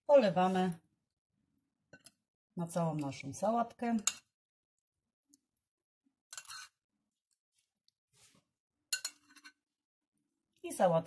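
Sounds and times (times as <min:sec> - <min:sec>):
spoon scraping glass bowl: 0:06.3 - 0:06.8, 0:08.9 - 0:09.6.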